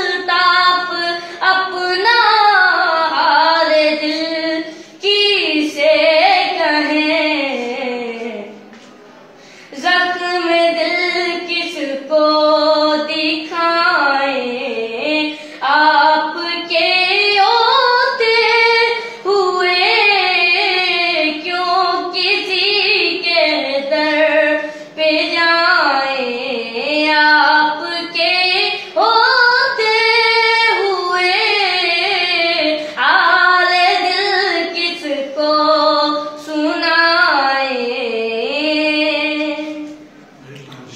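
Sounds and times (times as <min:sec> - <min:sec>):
breaths between phrases: 0:09.2 - 0:09.7.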